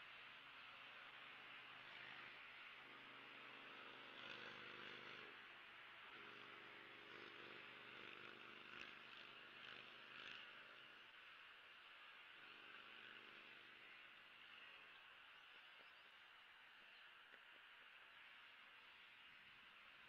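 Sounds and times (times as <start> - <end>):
faint outdoor hiss: 0.0 - 20.0.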